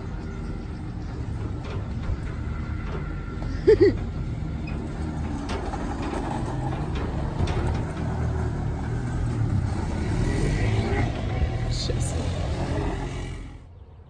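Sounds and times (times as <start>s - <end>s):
pickup truck engine rumbling: 0.0s - 13.9s.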